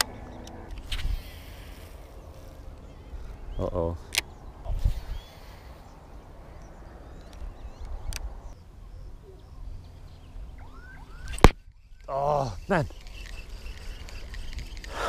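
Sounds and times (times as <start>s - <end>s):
birds chirping: 0.0s - 15.0s
sharp clicks: 12.8s - 15.0s.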